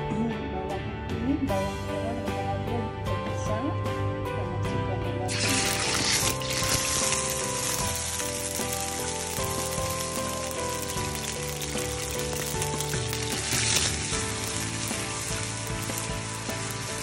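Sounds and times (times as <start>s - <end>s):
paste sizzling in hot oil: 5.3s - 17.0s.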